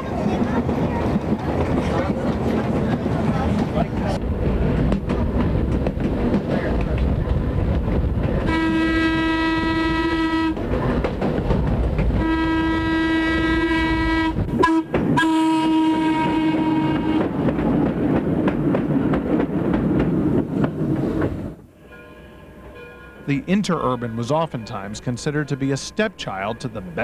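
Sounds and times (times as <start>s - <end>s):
train rumbling on rails: 0.0s - 27.0s
train horn blasts: 8.5s - 10.6s, 12.2s - 17.3s.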